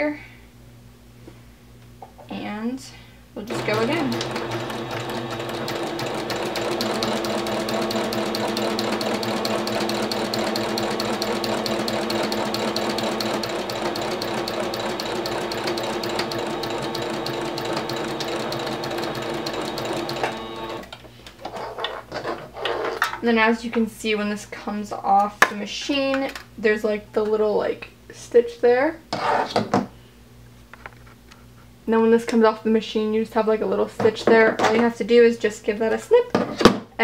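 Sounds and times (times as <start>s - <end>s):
sewing machine running: 3.5s - 20.9s.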